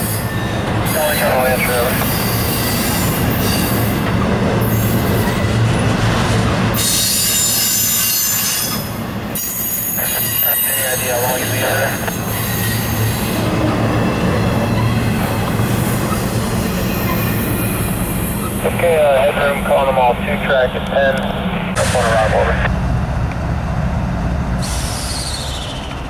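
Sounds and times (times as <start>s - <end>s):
train wheels rumbling on rails: 0.0s - 26.0s
high-pitched wheel squeal: 6.8s - 10.8s, 11.4s - 13.4s, 14.1s - 18.6s, 24.6s - 26.0s.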